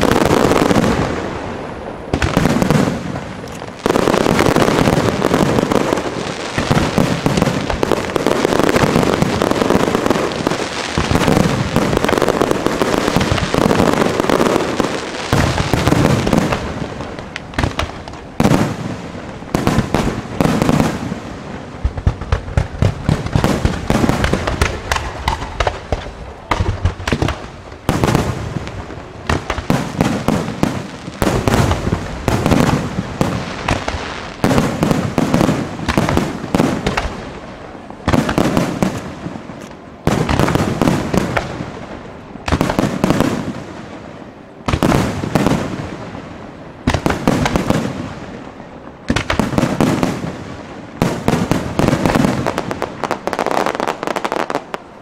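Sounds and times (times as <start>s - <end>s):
fireworks bursting: 0.0s - 55.0s.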